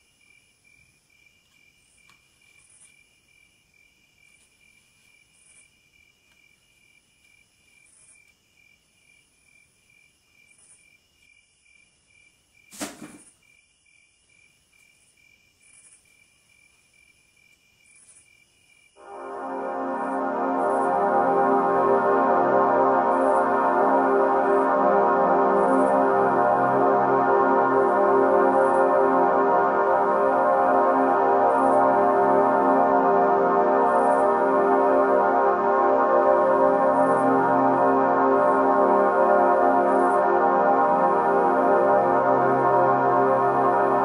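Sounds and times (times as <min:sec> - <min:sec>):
insects chirping: 0:00.0 - 0:21.0
sharp knock: 0:12.7 - 0:13.3
music with organ-like chords: 0:19.0 - 0:44.0.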